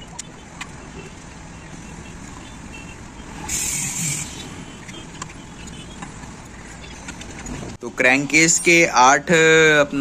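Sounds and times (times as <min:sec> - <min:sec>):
street traffic: 0:00.0 - 0:10.0
sharp hiss of air: 0:03.4 - 0:04.6.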